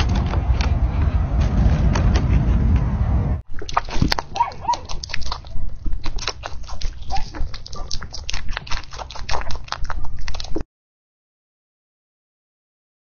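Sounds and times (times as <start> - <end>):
chewing crunchy food: 3.5 - 10.7.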